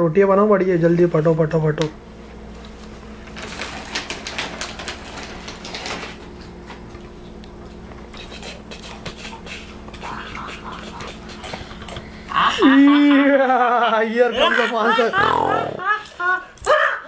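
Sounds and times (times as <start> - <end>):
low electrical hum: 0.0 - 17.0
rustling and clattering of things: 2.5 - 10.0.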